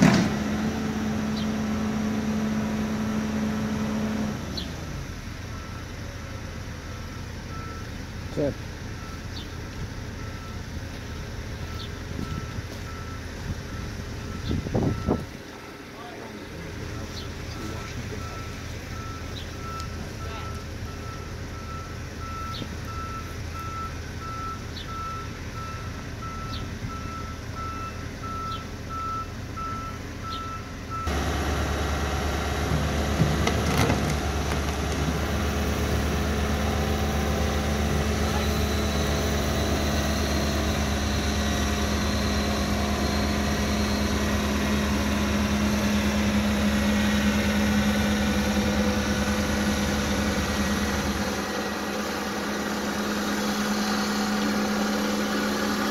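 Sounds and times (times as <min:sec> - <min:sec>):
excavator diesel engine and hydraulics: 0:00.0 - 0:55.9
backup alarm beeping: 0:11.6 - 0:15.4.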